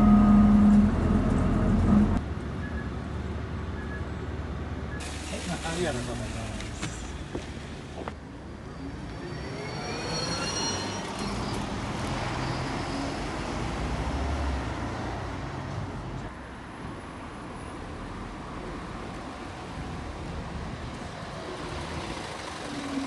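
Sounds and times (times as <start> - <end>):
bus engine whine: 0.0 - 5.1, 7.3 - 13.5
bus engine rumble: 0.0 - 14.0.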